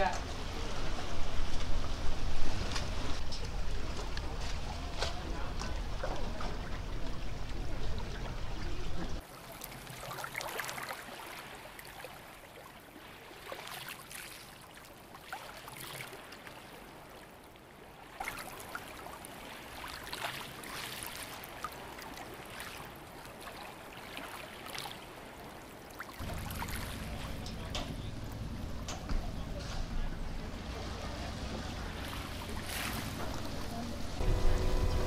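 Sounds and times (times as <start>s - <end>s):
water splashing and trickling: 0.0s - 35.0s
low steady rumble: 26.2s - 35.0s.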